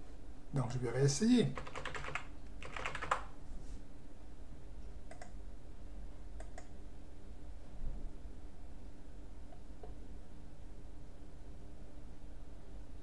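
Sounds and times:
computer keyboard typing: 1.6s - 3.3s, 5.1s - 5.3s, 6.4s - 6.7s
mouse clicks: 5.1s - 5.4s, 6.4s - 6.7s.

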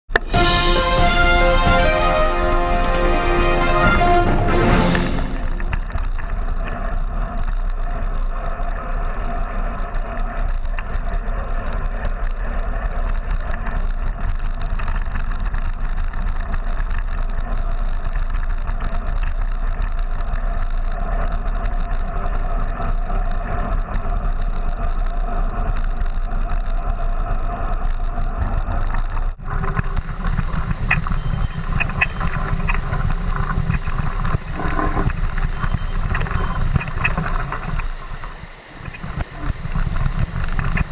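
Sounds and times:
bike road noise: 4.1s - 40.9s
wind rushing over microphone: 29.4s - 40.9s.

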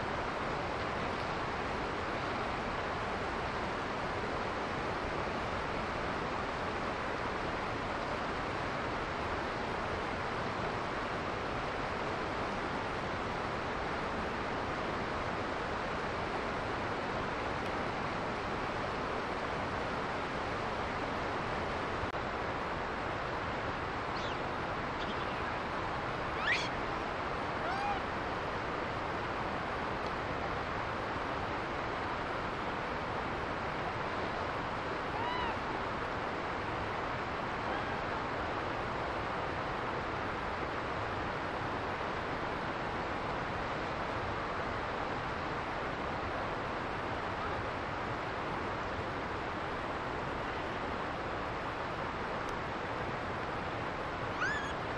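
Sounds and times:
rushing outdoor ambience: 0.0s - 54.9s
sharp rising call: 26.3s - 26.8s, 54.4s - 54.8s
faint high chirps: 26.4s - 26.8s.

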